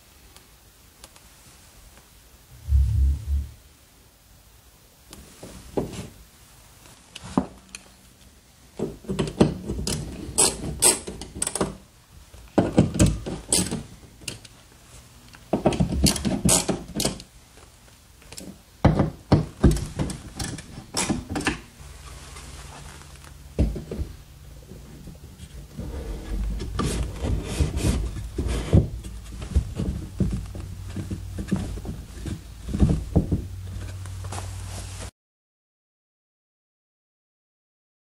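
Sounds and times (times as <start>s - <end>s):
wooden shelf rubbing and knocking: 2.6s - 3.6s, 23.6s - 34.0s.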